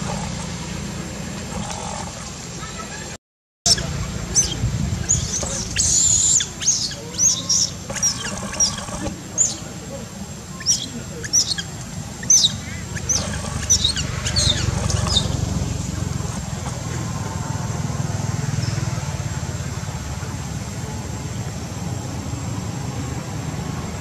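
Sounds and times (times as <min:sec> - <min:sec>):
low steady rumble: 0:00.0 - 0:24.0
monkey high-pitched squeaks: 0:03.7 - 0:09.6, 0:10.6 - 0:15.4.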